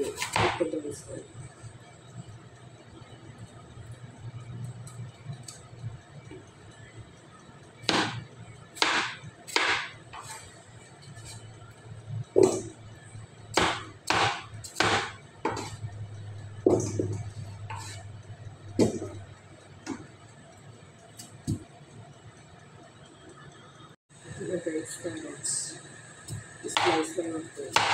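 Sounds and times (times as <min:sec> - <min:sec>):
cleaver chopping on cutting board: 0:07.9 - 0:08.2, 0:08.8 - 0:10.4, 0:13.6 - 0:15.8
blade scraping: 0:16.8 - 0:18.3.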